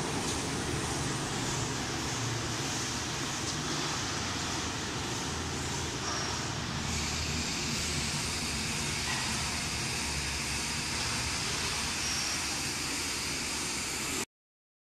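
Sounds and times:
washing machine humming and hissing: 0.0 - 14.3.

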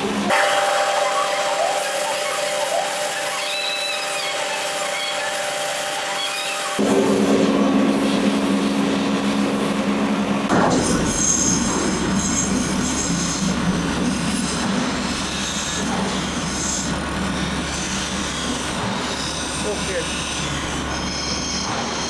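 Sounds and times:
grinder wheel grinding knife blade: 0.4 - 6.9, 11.2 - 22.0.

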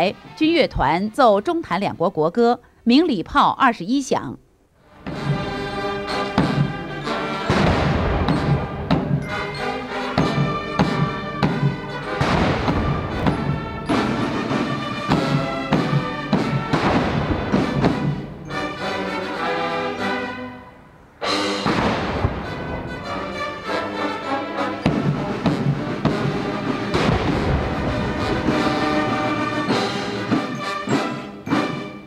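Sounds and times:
military brass band playing: 4.8 - 32.0
steady drum beat: 5.1 - 18.8, 21.5 - 31.8.

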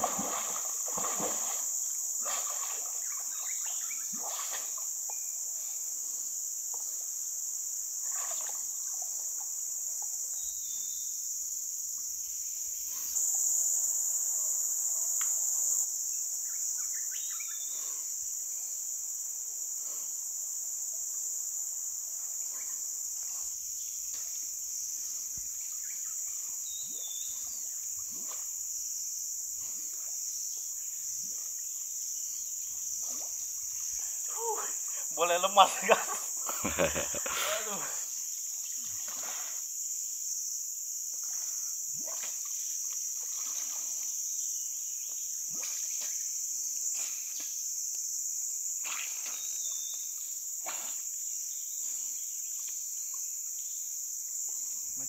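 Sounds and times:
faint splashes and knocks: 0.0 - 3.1, 4.1 - 5.2, 8.0 - 10.2, 42.0 - 44.1
high-pitched insect chorus: 0.0 - 55.0.

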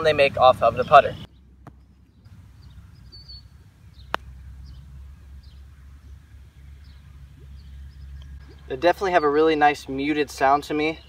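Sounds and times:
low wind rumble: 0.0 - 11.0
bird chirps: 0.7 - 9.4
putter striking golf ball: 1.6 - 2.0, 4.0 - 4.5.

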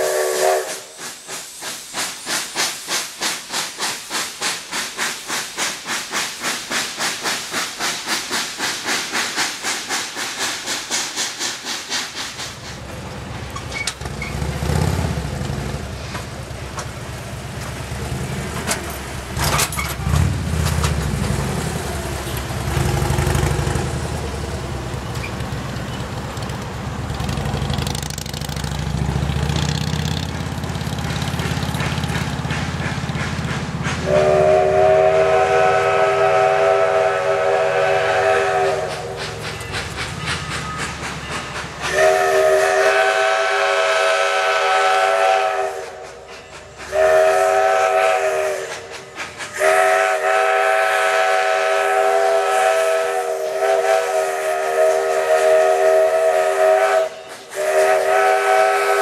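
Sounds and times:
steam locomotive whistle: 0.0 - 1.0, 34.0 - 39.4, 41.8 - 46.3, 46.9 - 59.0.

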